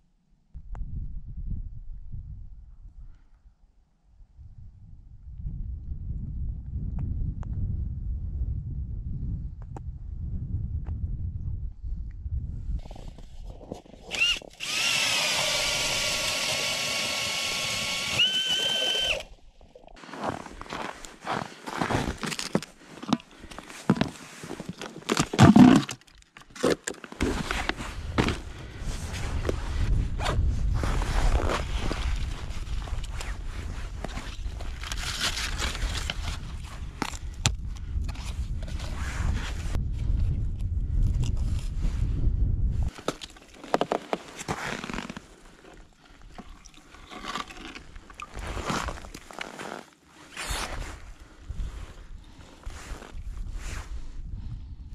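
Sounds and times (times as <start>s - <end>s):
wind buffeting microphone: 0.6s - 3.3s, 4.3s - 14.9s, 27.8s - 42.9s, 50.9s - 54.9s
clothing and gear rustling: 20.0s - 25.8s, 42.9s - 54.0s
plastic bucket scraping: 20.0s - 28.4s, 42.9s - 49.8s.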